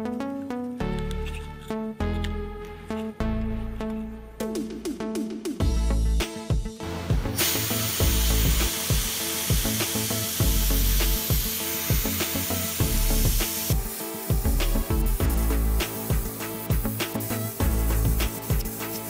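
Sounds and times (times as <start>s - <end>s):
background music with steady beat: 0.0s - 19.0s
sandblasting gun hissing: 7.4s - 19.0s.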